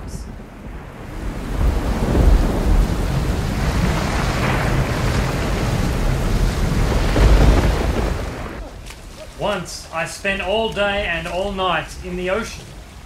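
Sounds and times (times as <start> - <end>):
deep rumble: 0.0 - 8.8
pool water splashing: 0.8 - 13.0.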